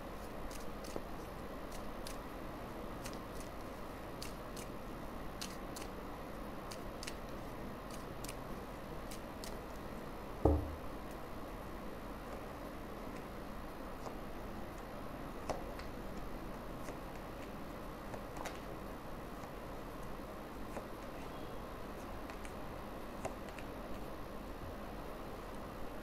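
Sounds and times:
dull thump: 10.4s - 10.8s.

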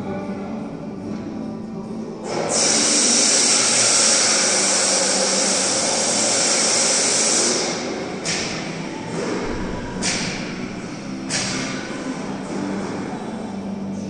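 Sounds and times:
loud rushing roar: 9.4s - 12.5s.

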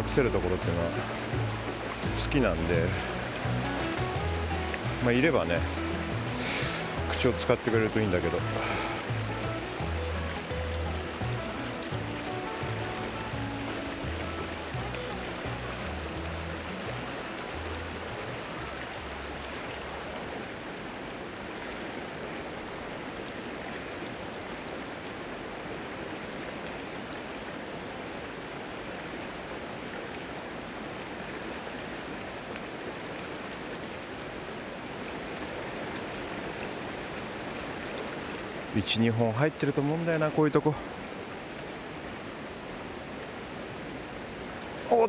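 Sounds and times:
river water rushing over rocks: 0.0s - 45.0s.

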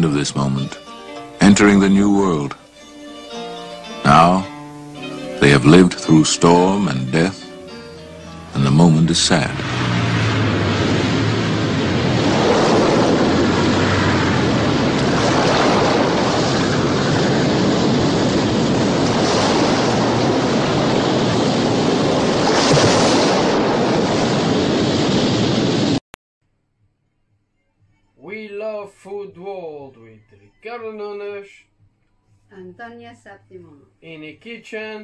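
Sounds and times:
wind: 8.2s - 26.0s
waves breaking around a boat: 11.1s - 25.5s.

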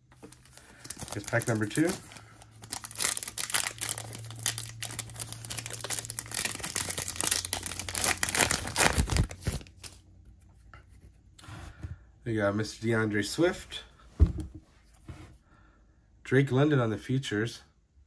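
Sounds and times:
foil pack tearing and crinkling: 0.3s - 9.9s.

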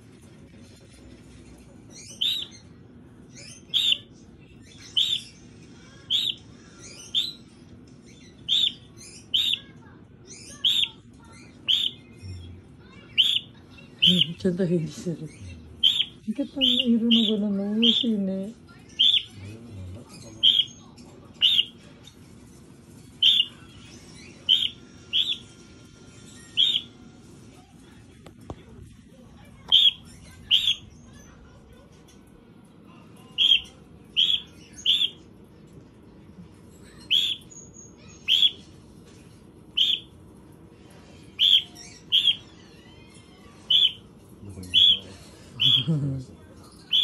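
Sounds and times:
cockatiel chirping: 1.9s - 2.6s, 3.3s - 4.1s, 4.7s - 5.4s, 6.0s - 7.4s, 8.2s - 9.7s, 10.3s - 12.3s, 13.1s - 14.4s, 15.4s - 18.2s, 18.9s - 19.4s, 20.2s - 20.8s, 21.4s - 21.8s, 23.2s - 25.5s, 26.3s - 27.0s, 29.7s - 31.2s, 33.3s - 35.3s, 36.9s - 38.7s, 39.7s - 40.2s, 41.3s - 42.7s, 43.6s - 46.0s, 46.8s - 47.0s.

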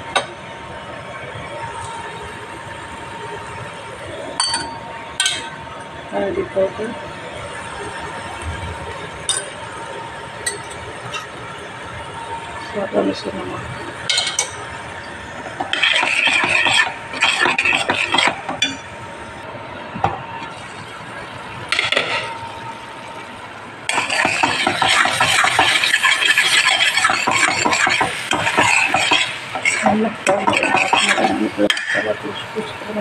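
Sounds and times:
spoon stirring paste in steel pan: 23.9s - 31.3s.

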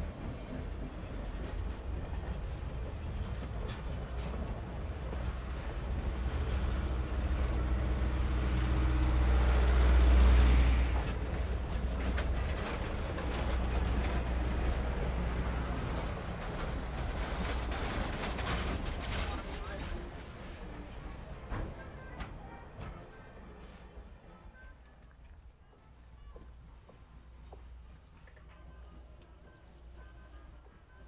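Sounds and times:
train wheels rumbling on rails: 0.0s - 23.2s.

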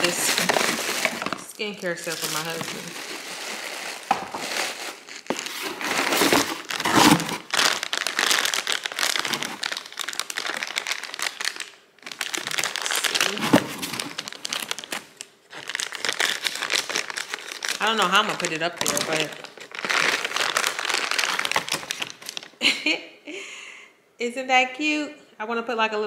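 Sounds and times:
packaging crinkling and rustling: 0.0s - 22.6s.

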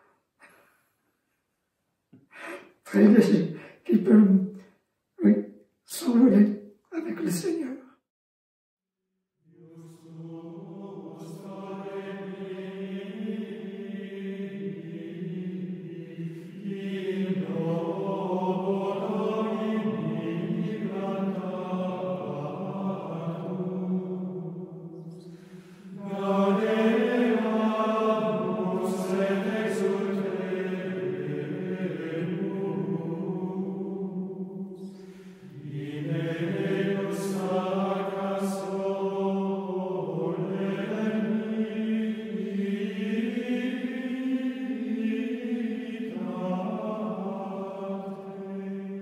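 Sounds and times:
singers breathing: 0.0s - 1.3s, 2.2s - 2.8s, 25.1s - 26.0s, 34.8s - 35.7s
men singing plainchant: 9.6s - 49.0s.

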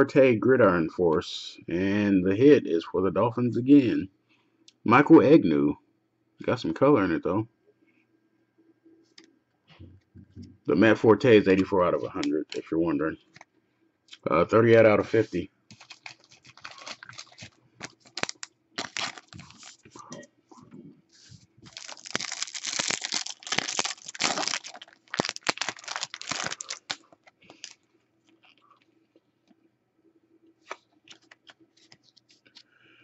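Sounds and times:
paper and plastic rustling: 15.1s - 20.0s, 21.2s - 27.8s.

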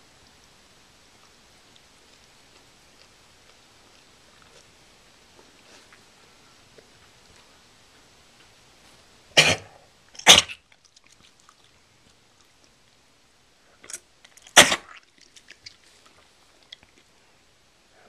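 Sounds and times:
dog retching: 9.4s - 10.6s, 13.8s - 15.1s.

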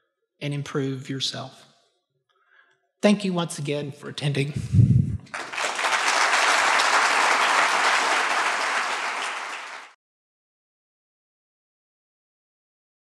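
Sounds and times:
audience applauding: 5.2s - 10.0s.

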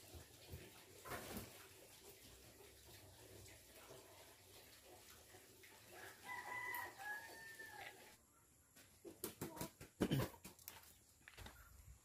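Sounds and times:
rooster crowing: 6.0s - 8.1s.

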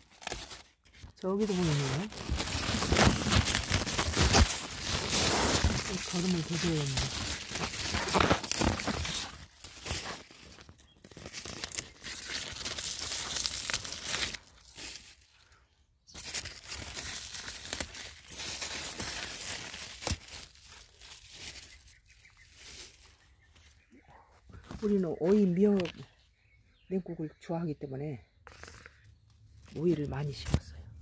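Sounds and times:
leaves rustling and crackling: 0.0s - 15.5s, 16.1s - 23.9s, 24.6s - 26.1s, 29.5s - 30.8s
crinkly handling noise: 0.0s - 26.3s, 28.5s - 31.0s.

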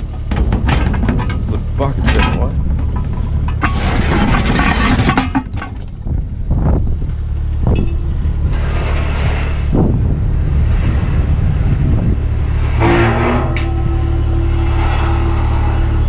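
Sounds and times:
metal knocks and clatter: 0.0s - 9.5s
diesel engine idling: 0.0s - 16.0s.

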